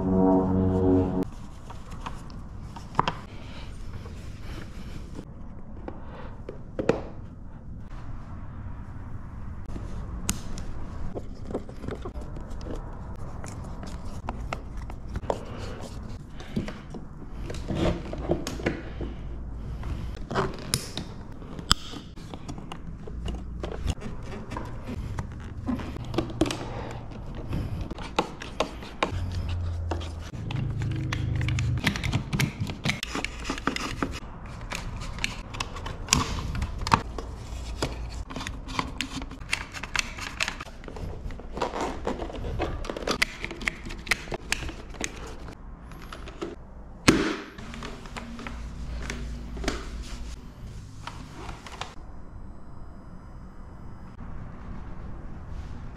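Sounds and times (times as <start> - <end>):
hands clicking on plastic bodywork: 42.9 - 45.5.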